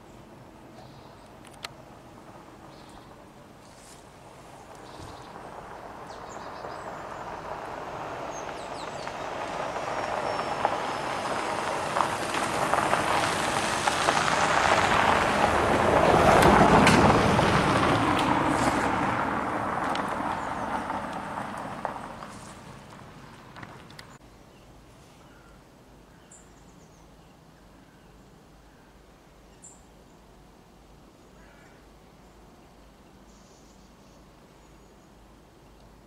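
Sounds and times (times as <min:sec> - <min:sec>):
car passing on dirt road: 0:03.6 - 0:24.2.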